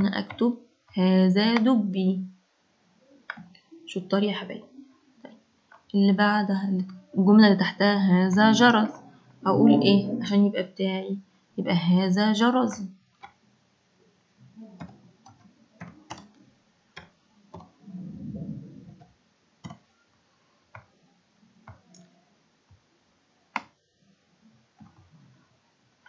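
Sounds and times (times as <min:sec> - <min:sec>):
computer mouse clicking: 0:03.3 - 0:03.6, 0:12.7 - 0:13.4, 0:14.8 - 0:16.4, 0:18.9 - 0:19.9, 0:20.7 - 0:20.9, 0:21.6 - 0:22.1, 0:23.5 - 0:23.8
soft low hum: 0:08.0 - 0:10.6, 0:17.4 - 0:19.0.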